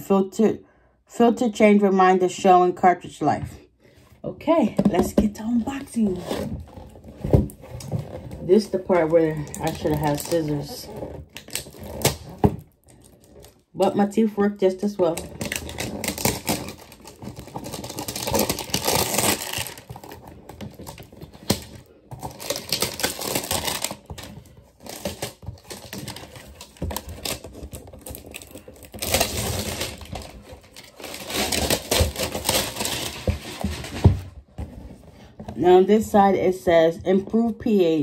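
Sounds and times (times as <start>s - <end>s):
plastic shrink-wrap crinkling and tearing: 5.7s - 13.7s, 14.8s - 34.2s.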